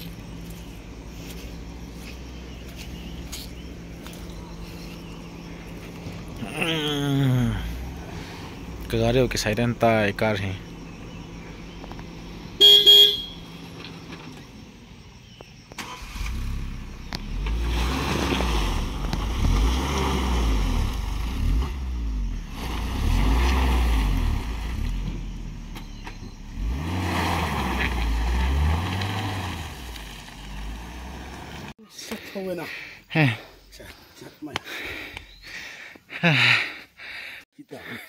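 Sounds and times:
loud beep: 12.6 - 13.4
engine revving in mud: 15.8 - 31.8.

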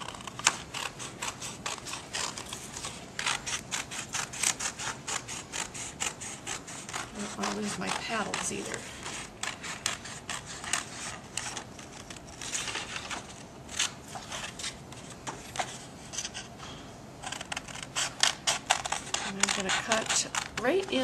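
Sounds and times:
scissors snipping paper: 0.0 - 16.4, 17.2 - 21.0
paper rustling: 6.9 - 21.0.

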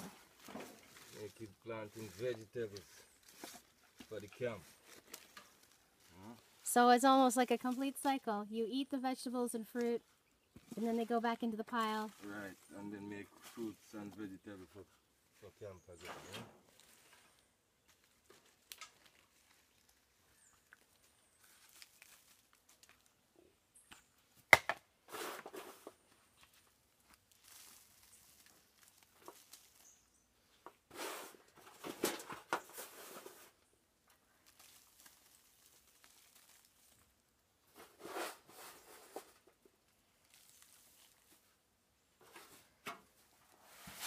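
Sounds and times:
dry soil pattering on leaves: 0.0 - 8.8, 10.6 - 14.4, 16.6 - 23.2, 25.6 - 30.9, 32.6 - 37.8, 39.2 - 41.6.

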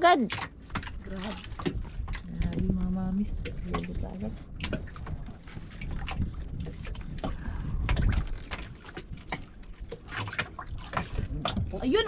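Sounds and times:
low rumble: 0.9 - 9.9.

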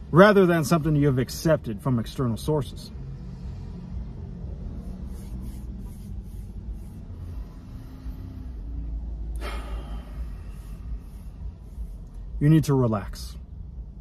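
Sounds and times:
short sharp breath: 7.1 - 12.0.

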